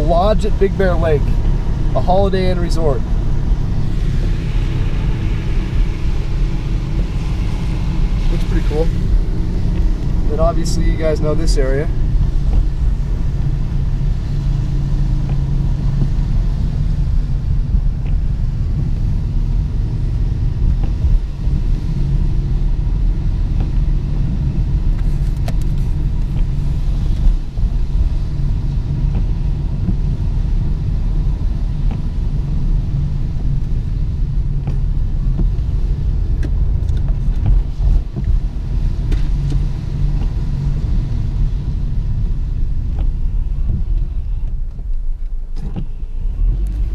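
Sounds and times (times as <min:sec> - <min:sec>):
car engine and road noise: 0:00.0 - 0:46.9.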